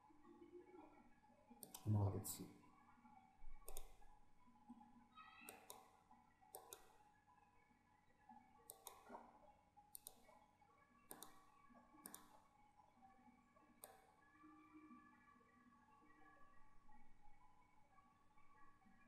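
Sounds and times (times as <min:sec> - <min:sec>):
faint computer mouse clicks: 0:01.6 - 0:01.9, 0:03.6 - 0:04.1, 0:05.4 - 0:07.0, 0:08.6 - 0:09.3, 0:09.9 - 0:10.4, 0:11.1 - 0:12.4, 0:13.8 - 0:14.2.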